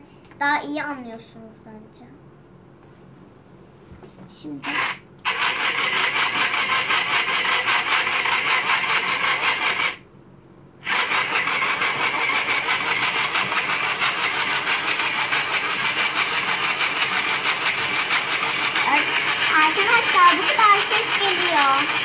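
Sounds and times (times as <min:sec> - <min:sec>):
small electric motor whirring: 0:04.6 - 0:10.0, 0:10.8 - 0:22.0.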